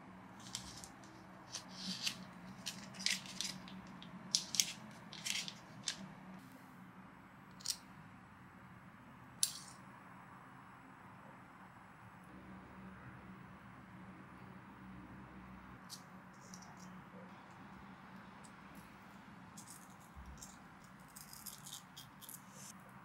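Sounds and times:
parchment paper crinkling: 0.4s - 6.0s.

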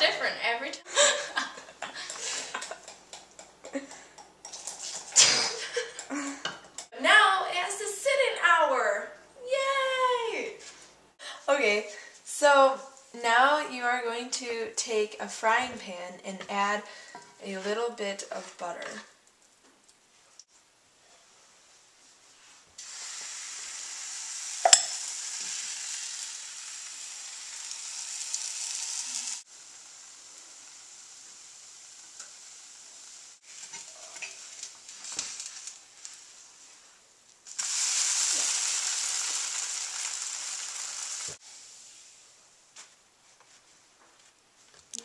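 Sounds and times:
batter sizzling in frying pan: 1.3s - 6.9s, 22.4s - 42.2s.

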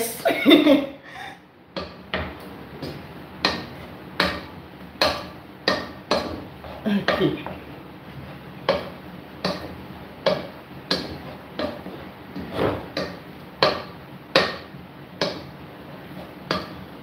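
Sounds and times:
potato masher knocking on pot: 1.7s - 7.6s, 8.6s - 15.5s, 16.2s - 17.0s.

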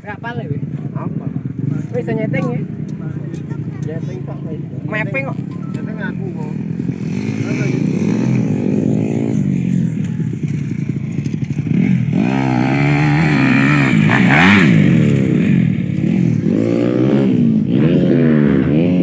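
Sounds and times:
dirt bike engine revving: 4.8s - 19.0s.

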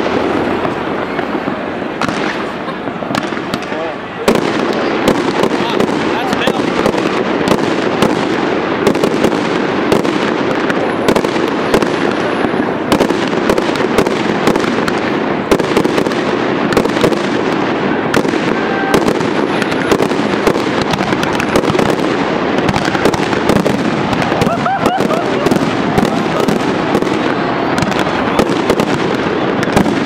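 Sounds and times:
fireworks bursting and crackling: 0.0s - 30.0s.

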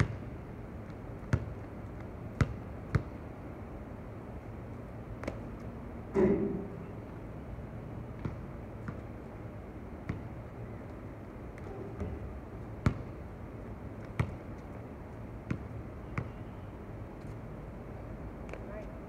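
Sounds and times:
basketball bouncing on hard court: 0.0s - 0.4s, 1.2s - 1.7s, 2.4s - 3.2s, 8.2s - 9.1s, 10.0s - 10.4s, 11.6s - 13.2s, 14.0s - 14.4s, 15.4s - 16.4s.

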